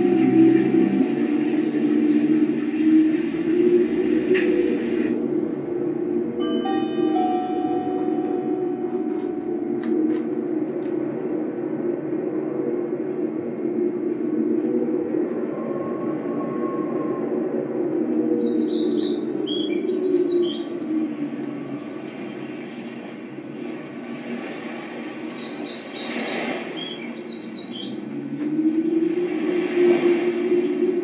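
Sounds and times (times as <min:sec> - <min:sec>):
low rumble: 0:00.0 - 0:18.8.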